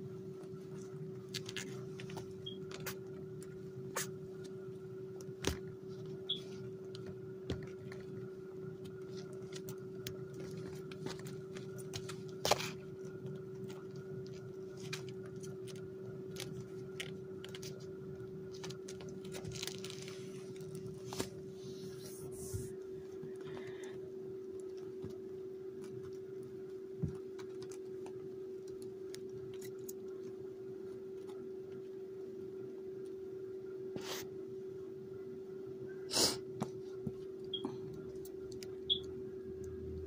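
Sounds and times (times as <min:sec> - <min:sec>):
steady low hum: 0:00.0 - 0:40.0
kittens crawling on plastic pad: 0:00.2 - 0:32.0.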